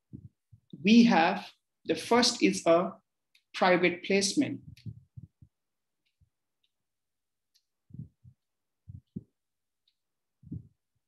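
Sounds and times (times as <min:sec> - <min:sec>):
stylus tapping on tablet screen: 0:07.9 - 0:09.4.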